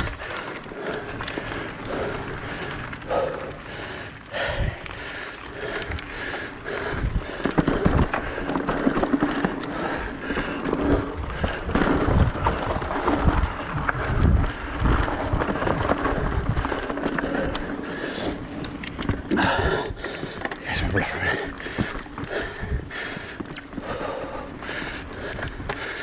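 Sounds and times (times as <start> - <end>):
low thuds over bumps: 0.0 - 18.4
bike rattling: 0.0 - 26.0
bike tyres rolling on dirt: 0.0 - 26.0.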